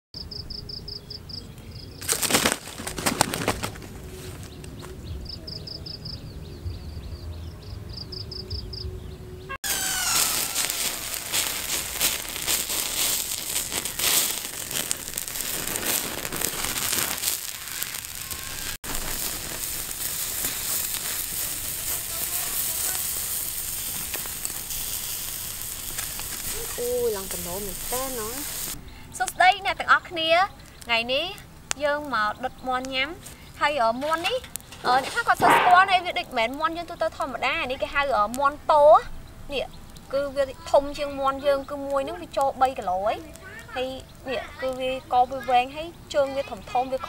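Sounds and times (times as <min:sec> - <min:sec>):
wood fire crackling and sizzling: 0:00.2 - 0:06.0, 0:09.6 - 0:47.0
bird wings flapping: 0:02.0 - 0:05.0
high chirping trill: 0:07.9 - 0:18.8.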